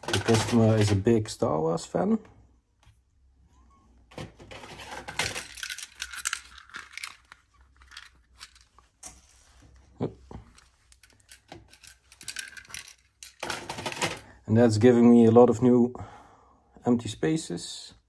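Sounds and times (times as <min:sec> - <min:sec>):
plastic bricks rattling: 0:00.0 - 0:01.1, 0:04.2 - 0:08.8, 0:10.4 - 0:14.4
plastic drawers being pulled: 0:00.0 - 0:01.1, 0:04.2 - 0:05.5, 0:13.4 - 0:14.3.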